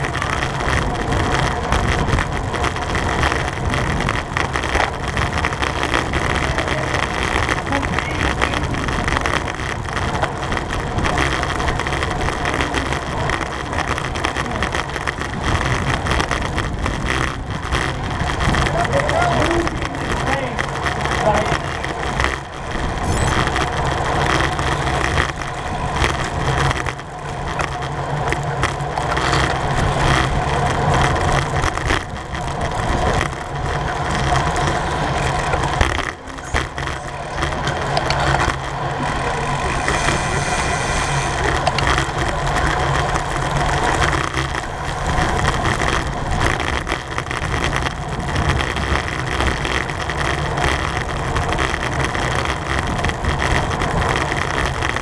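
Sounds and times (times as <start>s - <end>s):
road noise: 0.0s - 55.0s
wind rushing: 35.4s - 45.8s.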